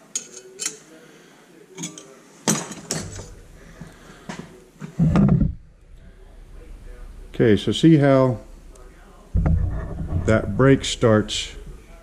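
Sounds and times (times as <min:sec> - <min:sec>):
metal tools clinking and knocking: 0:00.1 - 0:00.8, 0:01.8 - 0:03.3
heavy low thump: 0:09.4 - 0:11.8.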